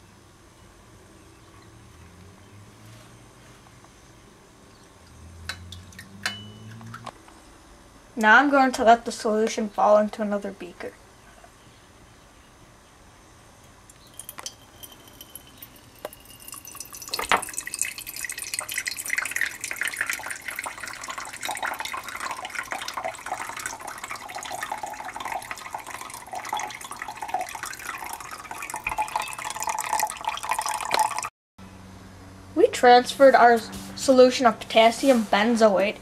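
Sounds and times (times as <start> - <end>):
liquid trickling into glass: 5.5 - 7.0, 14.0 - 31.3.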